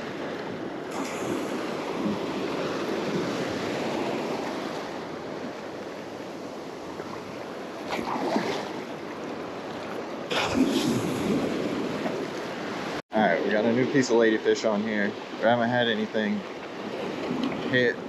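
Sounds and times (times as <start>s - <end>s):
small waves washing in shallow water: 0.0s - 18.0s
wind on microphone: 9.9s - 13.0s.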